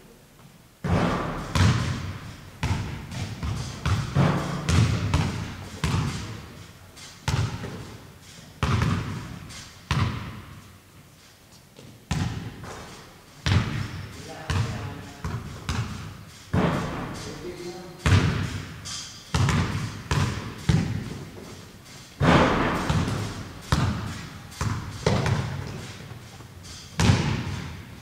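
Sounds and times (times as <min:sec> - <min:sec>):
heavy ringing thuds: 0:16.2 - 0:27.9.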